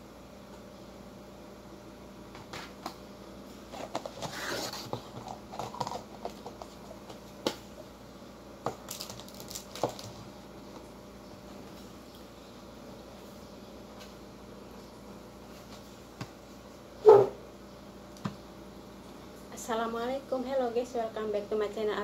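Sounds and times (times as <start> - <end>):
faint steady hum: 0.0 - 22.0
plastic containers crinkling: 3.7 - 7.6, 8.7 - 10.3.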